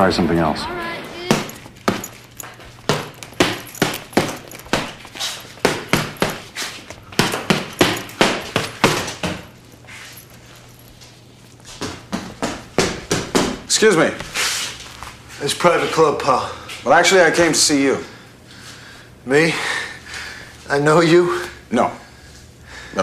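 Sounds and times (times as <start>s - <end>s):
punches on punching bag: 2.9s - 5.0s, 5.6s - 6.5s, 7.2s - 9.5s.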